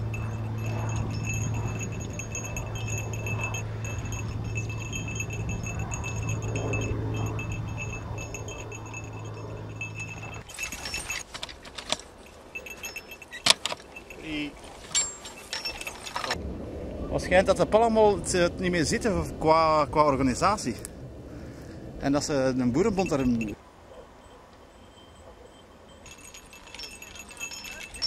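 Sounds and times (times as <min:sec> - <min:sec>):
steady low hum: 0:00.0 - 0:11.1
harness chains jingling: 0:00.0 - 0:16.4, 0:22.8 - 0:23.6, 0:24.2 - 0:28.0
sharp metal clanks and knocks: 0:09.8 - 0:14.1.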